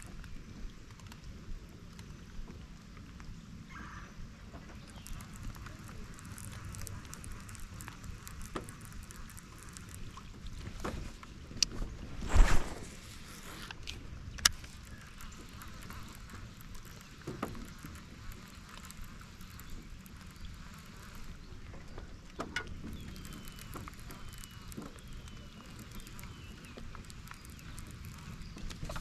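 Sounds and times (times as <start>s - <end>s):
light rain pattering on water: 0.0s - 29.0s
sharp clicks: 4.8s - 10.7s, 13.6s - 21.4s.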